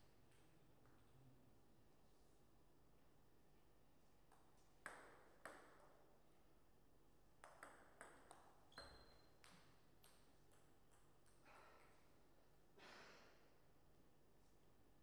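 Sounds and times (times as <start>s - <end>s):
table tennis ball hits: 4.3s - 5.9s, 7.4s - 11.6s.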